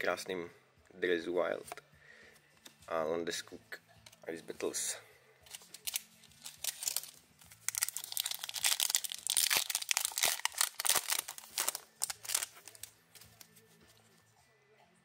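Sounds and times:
foil wrapper crackling and crinkling: 5.5s - 13.5s.

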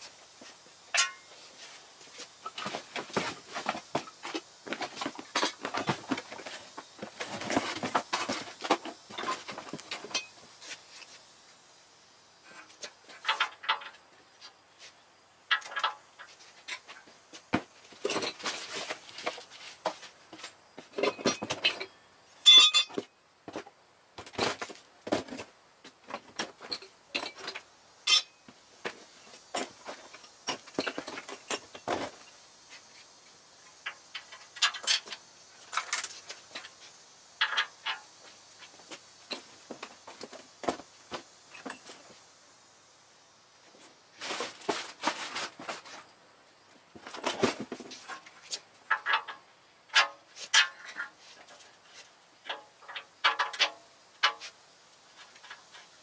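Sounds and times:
metal tools clinking: 0.9s - 1.4s, 21.0s - 23.0s, 26.6s - 28.4s, 33.8s - 36.7s.

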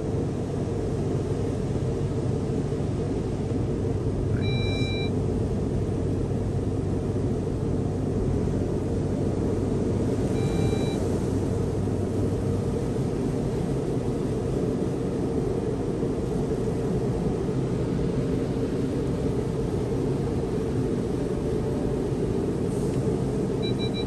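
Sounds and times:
car wash machinery rumble: 0.0s - 24.0s
short electronic beeps: 4.3s - 5.1s, 10.4s - 11.0s, 23.6s - 24.0s.

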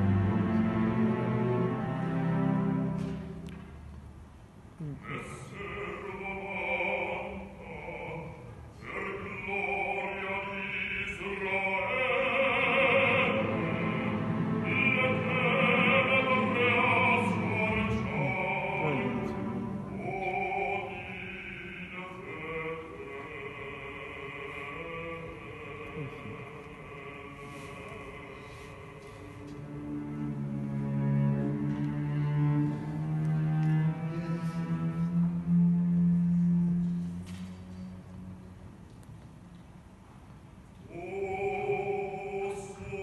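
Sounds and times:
orchestra playing: 0.0s - 3.5s, 9.3s - 23.7s, 27.3s - 37.2s.

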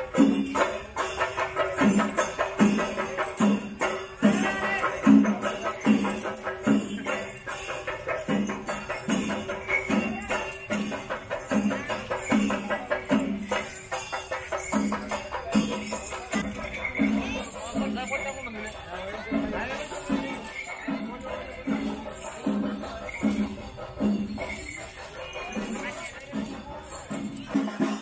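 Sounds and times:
fast jingling percussion: 0.0s - 28.0s.

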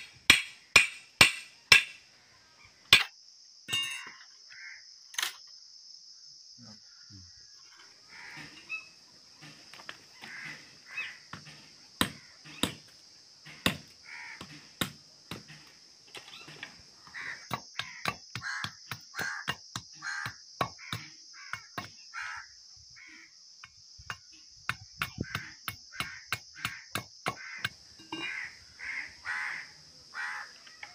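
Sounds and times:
crows cawing: 4.5s - 4.9s, 8.0s - 9.0s, 10.1s - 12.8s, 13.5s - 14.8s, 17.0s - 23.3s, 25.1s - 30.9s.

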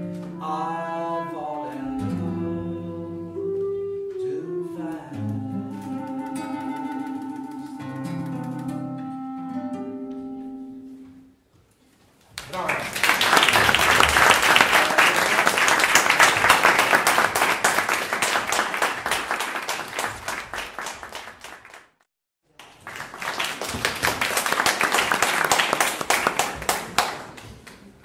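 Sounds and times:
audience applauding: 12.4s - 27.8s.

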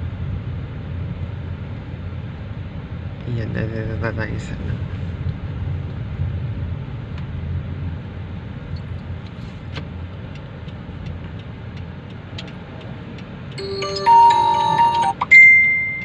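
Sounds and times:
loud ringing chime: 13.6s - 16.0s.

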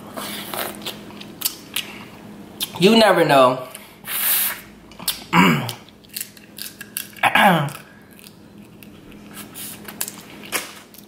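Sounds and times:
crab shell cracking: 5.0s - 9.0s.

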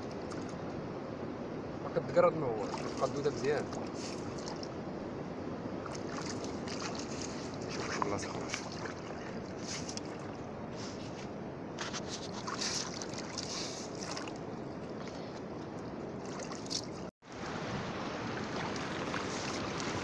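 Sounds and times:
sea: 0.0s - 20.0s
wind: 0.0s - 20.0s
hands digging in shallow water: 2.6s - 4.7s, 5.8s - 15.3s, 16.2s - 17.0s.

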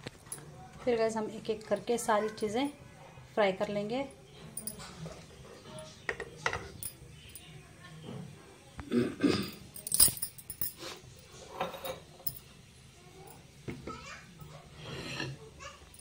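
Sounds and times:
utensils clinking and knocking: 4.1s - 7.5s, 9.4s - 12.5s.

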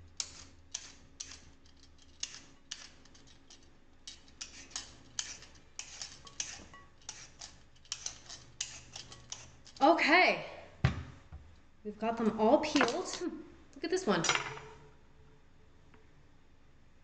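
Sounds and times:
peeler scraping sweet potato: 0.1s - 9.9s.

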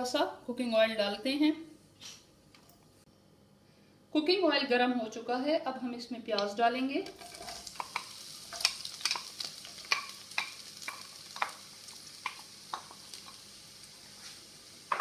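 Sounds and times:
onions sizzling in oil: 7.0s - 15.0s.

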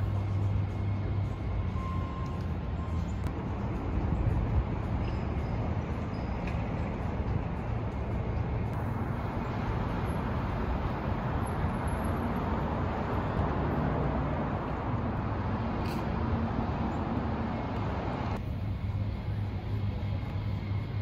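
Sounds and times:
city traffic rumble: 0.0s - 21.0s
low engine hum: 0.0s - 21.0s.

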